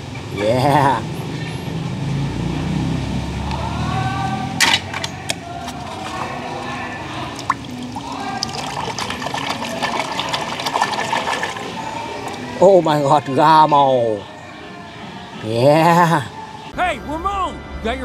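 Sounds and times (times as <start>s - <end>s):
hand splashing in tub of water: 4.6s - 12.4s.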